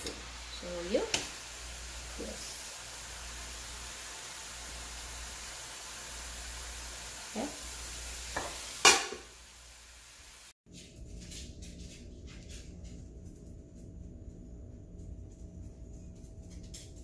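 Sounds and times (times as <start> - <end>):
food sizzling in a pan: 0.0 - 10.6.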